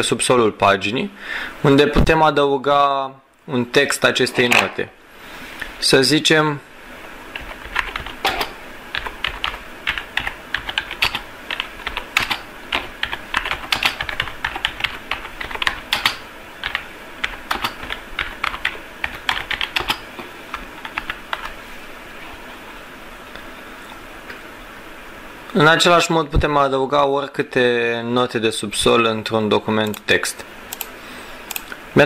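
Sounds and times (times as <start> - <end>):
computer keyboard keys clicking: 7.4 - 21.5, 31.5 - 31.7.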